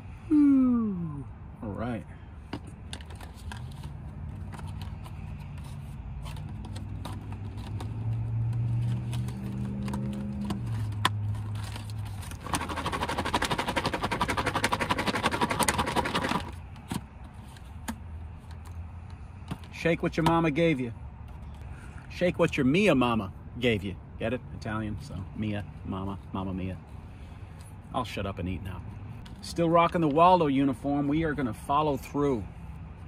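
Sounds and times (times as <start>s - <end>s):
man humming: 0.3s - 1.3s
salad rattling in plastic container: 12.4s - 16.6s.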